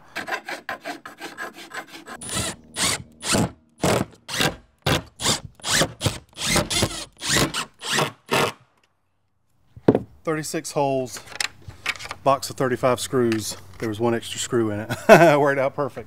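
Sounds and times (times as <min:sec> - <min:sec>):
hand file rasping on metal: 0:00.0 - 0:08.2
cordless driver driving screws: 0:02.2 - 0:08.6.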